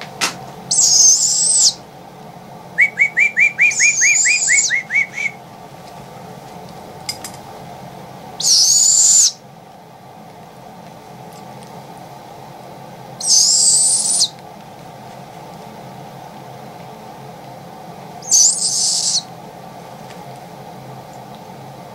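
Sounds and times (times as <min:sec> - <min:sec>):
steady low hum: 0:00.0 - 0:21.9
baby owl raspy screeches: 0:00.7 - 0:01.8, 0:02.8 - 0:05.4, 0:08.4 - 0:09.4, 0:13.2 - 0:14.4, 0:18.2 - 0:19.3.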